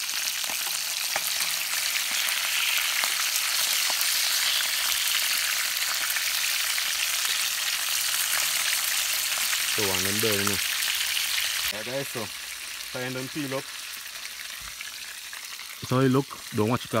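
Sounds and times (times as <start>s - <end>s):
fish sizzling in hot oil: 0.0s - 17.0s.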